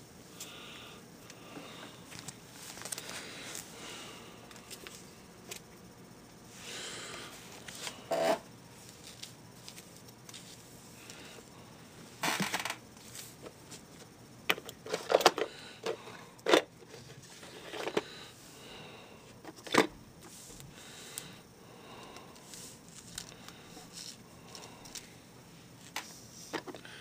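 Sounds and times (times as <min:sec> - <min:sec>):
rustling and scraping: 0:02.1 - 0:03.7, 0:07.4 - 0:10.8, 0:12.2 - 0:18.1.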